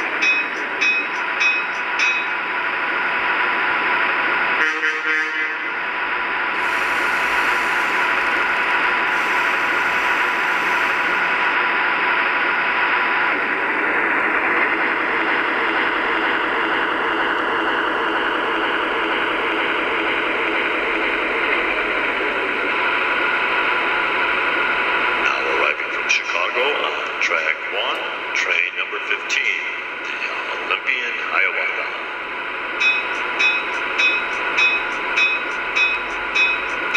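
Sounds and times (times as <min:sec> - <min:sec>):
model locomotive idle hiss: 0:06.6 - 0:11.4.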